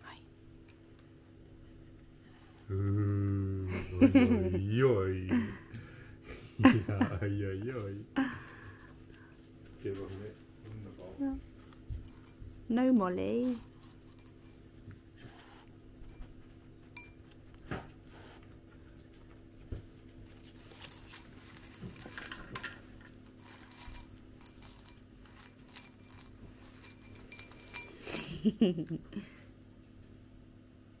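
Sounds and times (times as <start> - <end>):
dry pasta rattling in bowls: 12.0 - 14.7, 20.4 - 28.3.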